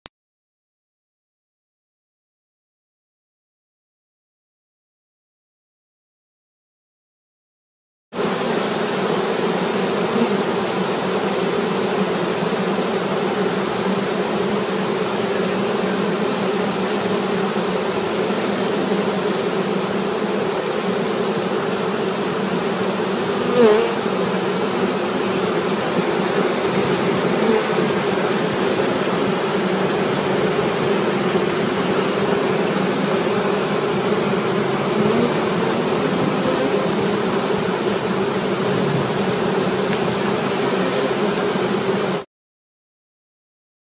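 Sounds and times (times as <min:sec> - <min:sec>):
bee swarm buzzing: 0:08.2 - 0:42.3.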